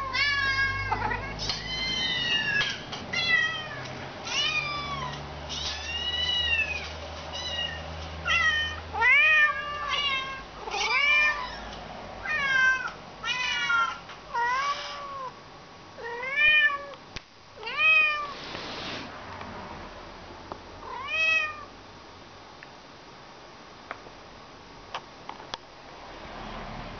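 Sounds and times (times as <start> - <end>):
kittens meowing through speakers: 0.0 - 11.6
adult cat meowing: 0.0 - 15.4, 16.0 - 17.0, 17.6 - 18.4, 20.8 - 21.7.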